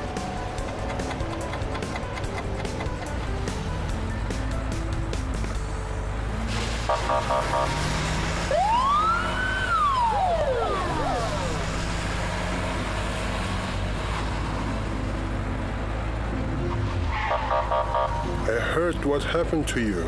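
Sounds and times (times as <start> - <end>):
siren wailing: 6.9 - 12.2, 17.1 - 18.4.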